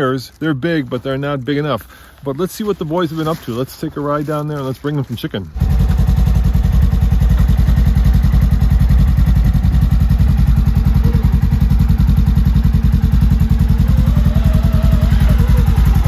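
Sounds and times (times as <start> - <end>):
vehicle engine running at low speed: 5.5 - 16.0.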